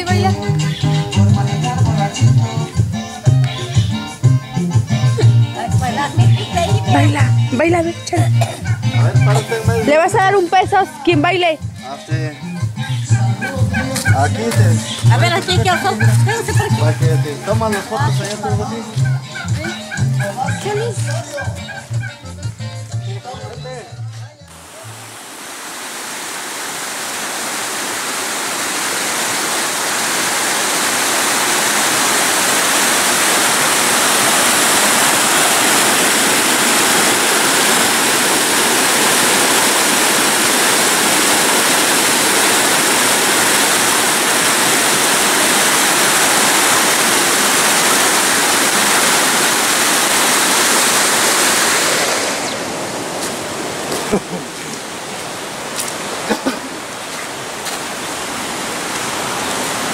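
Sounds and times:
stream rushing over boulders: 0:13.4 - 0:21.5, 0:24.5 - 0:59.9.

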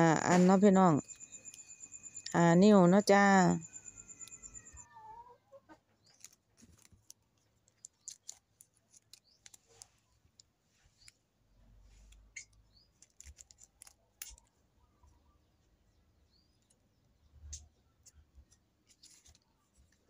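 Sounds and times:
ribbon and leaves crinkling: 0:06.0 - 0:14.8, 0:18.0 - 0:20.0
small clicks of handling: 0:06.1 - 0:11.2, 0:12.1 - 0:14.5.

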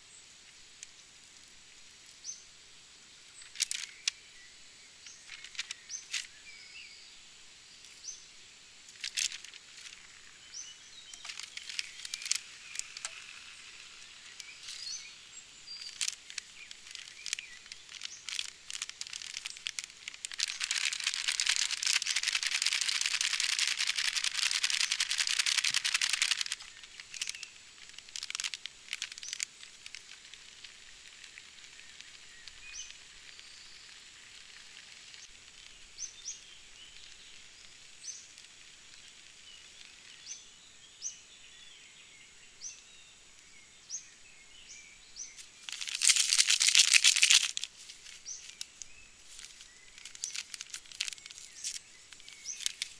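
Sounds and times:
plastic pouches crinkling: 0:03.4 - 0:04.1, 0:08.9 - 0:33.0, 0:45.3 - 0:52.9
birds chirping: 0:09.0 - 0:38.4, 0:39.0 - 0:52.9.

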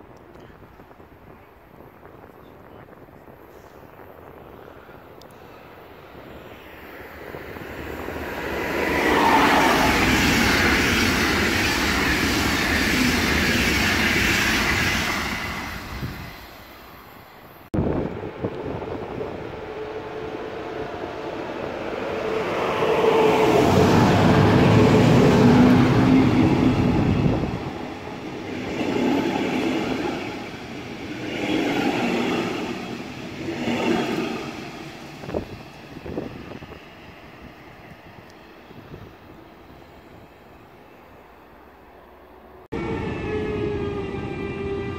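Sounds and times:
trains passing: 0:00.0 - 0:44.9.

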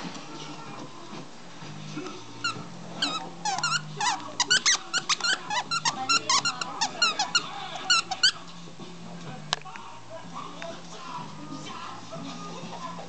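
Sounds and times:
squeak toy squeaking: 0:02.4 - 0:08.4.

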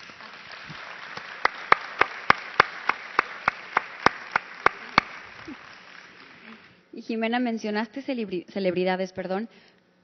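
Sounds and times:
close sharp hand claps: 0:00.0 - 0:06.4
audience applauding: 0:00.0 - 0:06.7.

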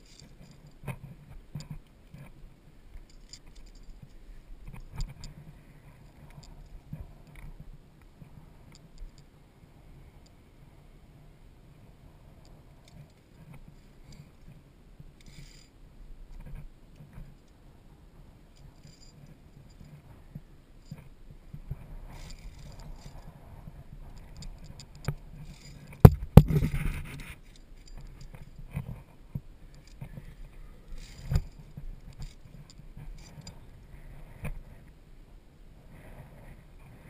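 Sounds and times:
gear scraping on rock and cable: 0:00.0 - 0:07.6, 0:15.2 - 0:15.8, 0:18.6 - 0:34.8
cable scuffling against camera: 0:18.6 - 0:34.7
sharp knocks: 0:26.0 - 0:26.9.

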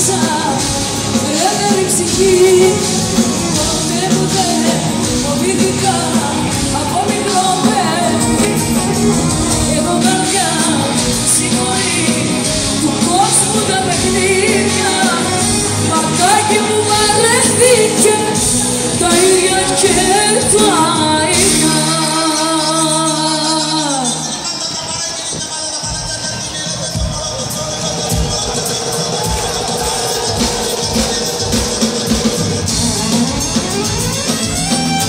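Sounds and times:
woman singing into microphone: 0:00.0 - 0:26.1
band playing bouzoukis and keyboards: 0:00.0 - 0:35.0.

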